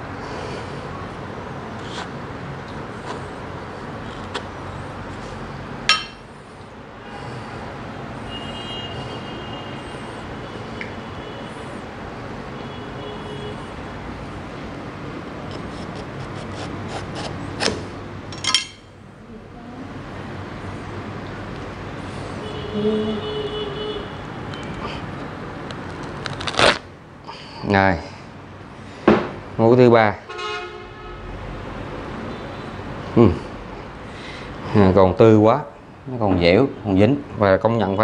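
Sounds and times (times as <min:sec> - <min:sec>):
sharp knocks on wooden table: 0:29.1 - 0:29.4.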